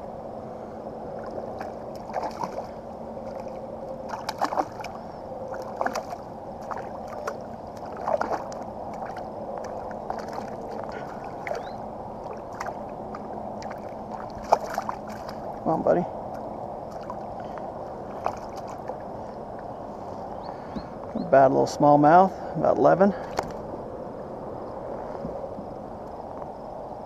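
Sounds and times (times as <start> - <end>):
water lapping against kayak hull: 1.1 - 21.2
fish thrashing and splashing: 1.2 - 15.6, 16.4 - 19.1.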